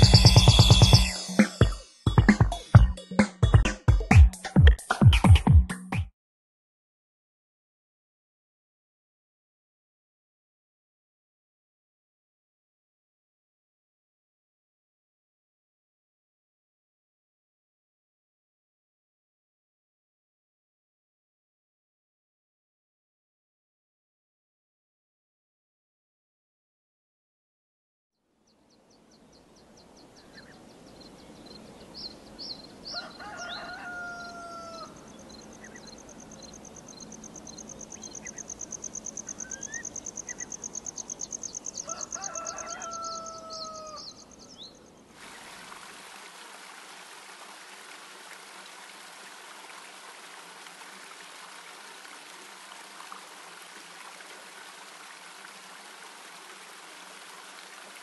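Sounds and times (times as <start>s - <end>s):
small birds chirping: 28.5s - 33.8s, 34.7s - 45.1s
rooster crowing: 32.8s - 35.1s, 41.8s - 44.2s
running water: 45.1s - 58.0s.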